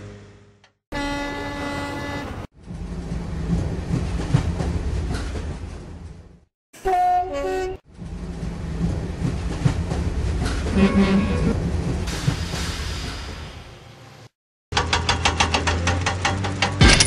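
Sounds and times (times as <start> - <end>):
locomotive horn: 0.9 - 2.5, 6.8 - 7.8.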